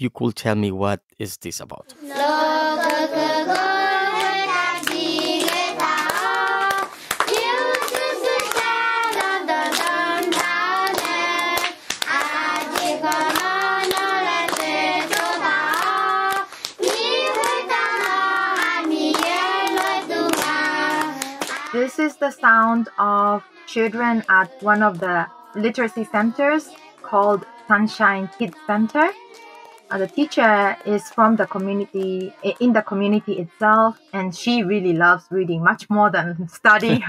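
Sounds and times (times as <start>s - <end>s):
children singing: 1.9s - 33.4s
hand clapping: 2.1s - 21.8s, 24.4s - 32.7s.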